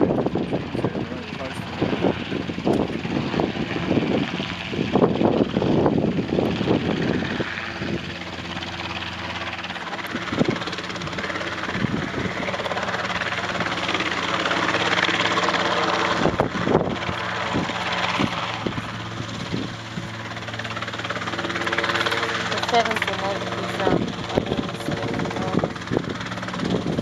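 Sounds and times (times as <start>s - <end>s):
gusty wind noise: 0.0s - 27.0s
helicopter hovering: 0.0s - 27.0s.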